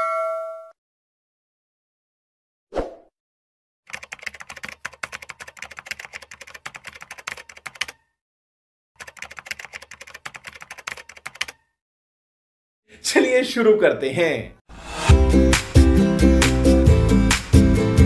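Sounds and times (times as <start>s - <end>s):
rapid keyboard key clicks: 3.9s - 8.0s, 9.0s - 11.6s.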